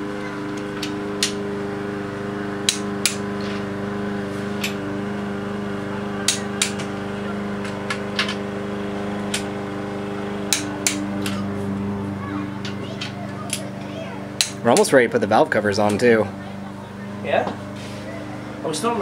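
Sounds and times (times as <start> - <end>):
steady low hum: 0.0 - 19.0
torque wrench clicks: 14.4 - 14.9.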